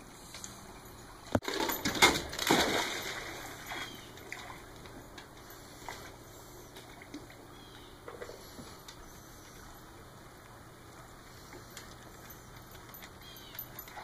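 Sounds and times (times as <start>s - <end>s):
dog swimming splashing water: 1.4s - 7.5s.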